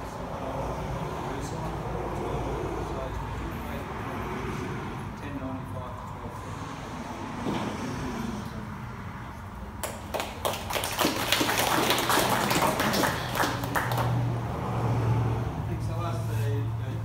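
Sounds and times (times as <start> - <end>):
audience applauding: 9.8 - 14.4.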